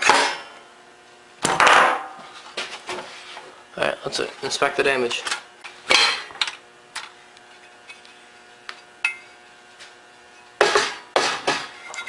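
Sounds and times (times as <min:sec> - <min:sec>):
sharp knock on workbench: 0:10.6 - 0:11.6.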